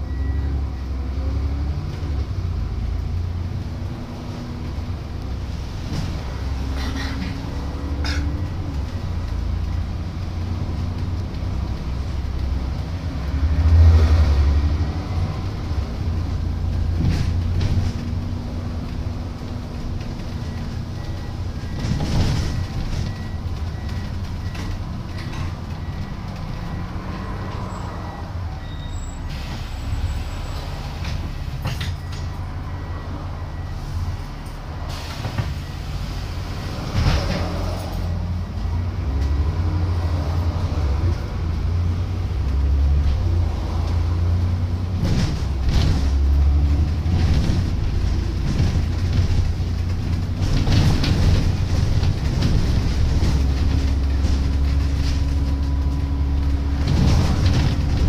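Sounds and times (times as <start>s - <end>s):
bus diesel engine: 0.0s - 58.0s
bus body knocks and rattles: 15.3s - 26.6s, 36.8s - 37.9s, 43.0s - 58.0s.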